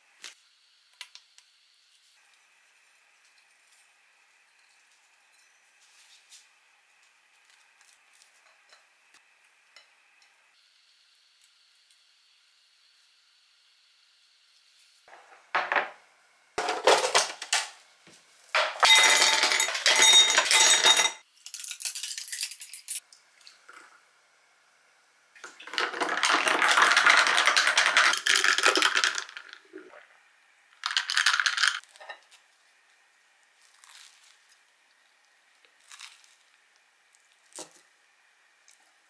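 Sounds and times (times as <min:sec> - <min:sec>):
ice cubes clinking into glass: 0:18.6 - 0:23.0, 0:25.5 - 0:29.6, 0:30.8 - 0:31.8
liquid pouring over ice: 0:25.5 - 0:30.0.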